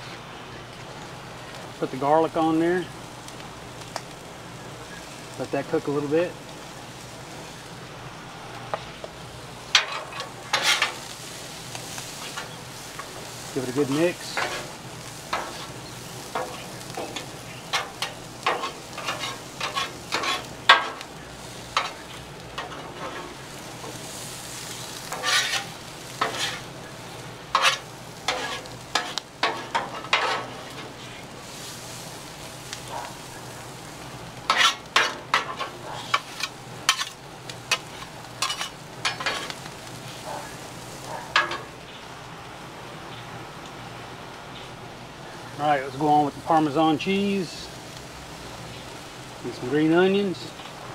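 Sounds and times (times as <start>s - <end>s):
corn sizzling on a griddle: 0.0s - 50.9s
metal spatula scraping griddle: 9.7s - 26.7s, 27.5s - 32.0s, 34.4s - 41.7s.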